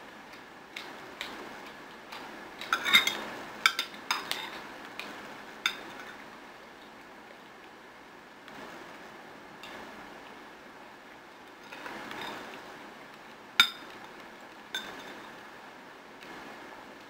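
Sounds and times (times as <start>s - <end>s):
spoon scraping bowl: 2.6s - 4.6s
spoon clinking on glass bowl: 13.6s - 13.9s, 14.8s - 15.2s.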